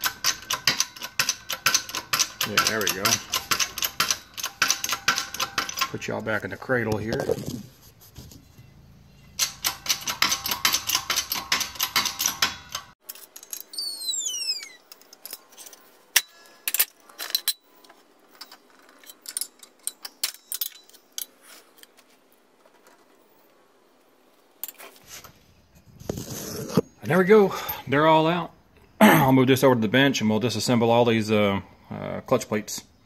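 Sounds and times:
metal clicks and taps: 0.0 - 6.0, 9.4 - 13.7
rapid metallic clicking: 0.0 - 6.2, 9.4 - 13.0
short falling squeaks: 13.6 - 15.0.

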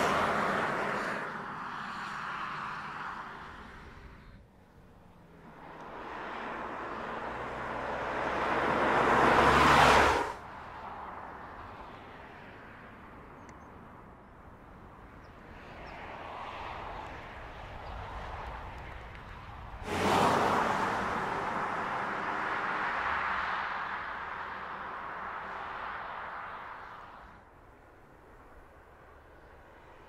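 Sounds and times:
car driving by: 5.4 - 10.4, 19.8 - 27.4.

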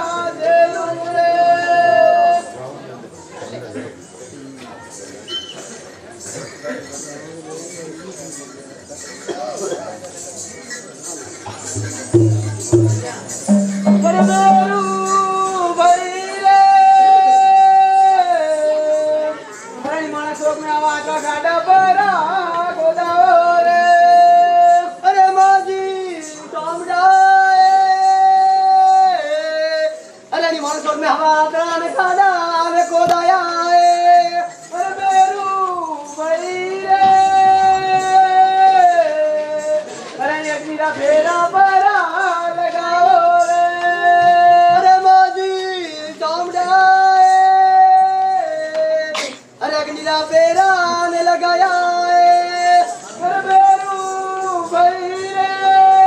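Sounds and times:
high voice singing long notes: 11.8 - 15.6.

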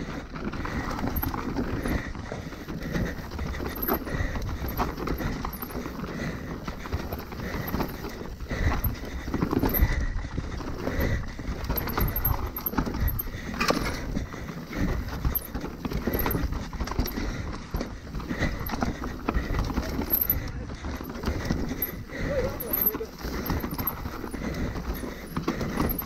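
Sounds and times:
bike knocking and rattling: 0.0 - 26.0
bike tyres rumbling on dirt: 0.0 - 26.0.

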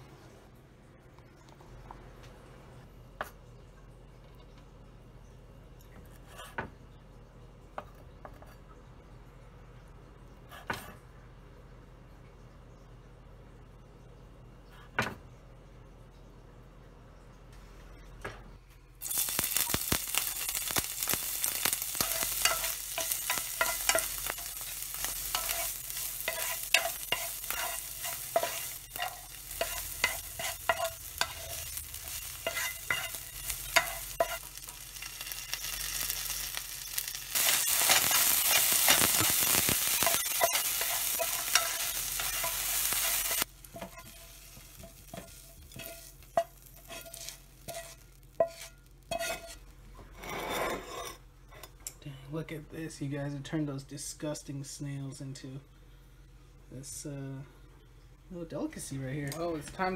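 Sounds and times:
food sizzling in hot oil: 19.0 - 49.6
spatula scraping and tapping pan: 21.0 - 51.8.

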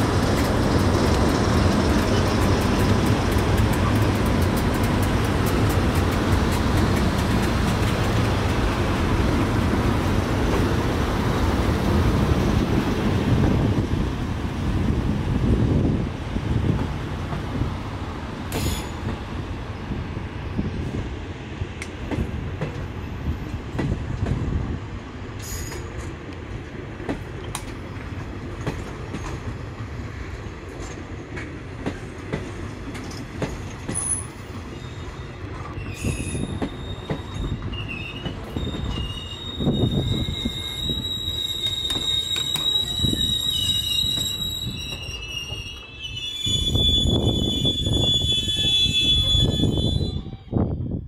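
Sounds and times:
wheels clicking over rail joints: 0.0 - 9.8
train low rumble: 0.0 - 51.0
high thin wheel squeal: 34.0 - 50.5.

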